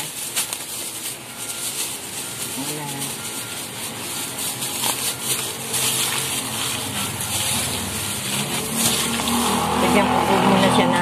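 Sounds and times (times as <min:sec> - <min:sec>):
plastic glove rustling: 0:00.0 - 0:11.0
wet squishing of meat: 0:04.6 - 0:09.8.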